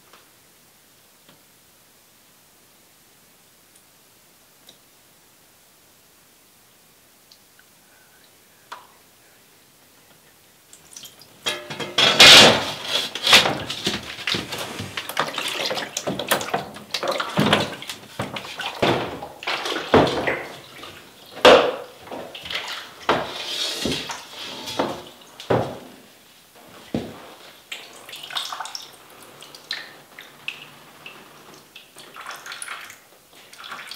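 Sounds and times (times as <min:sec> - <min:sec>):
liquid sloshing in plastic tray: 0:11.8 - 0:25.8.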